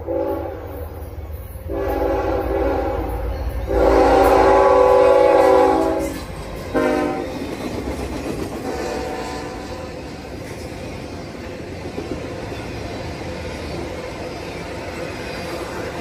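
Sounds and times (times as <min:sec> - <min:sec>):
locomotive air horn blasts: 0:00.0 - 0:00.7, 0:01.7 - 0:07.3, 0:08.6 - 0:10.0
train cars rolling past: 0:00.0 - 0:16.0.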